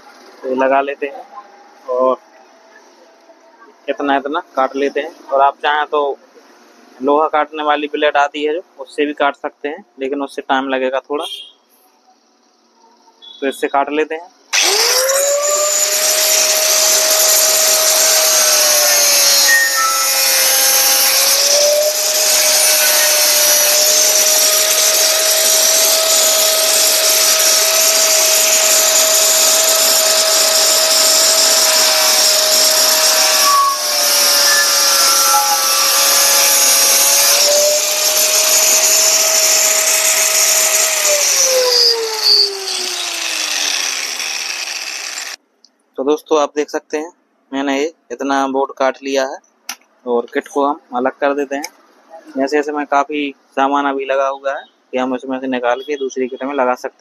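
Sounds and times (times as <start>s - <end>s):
grinder cutting circuit board: 14.5s - 45.4s
grinder winding down whine: 14.5s - 45.4s.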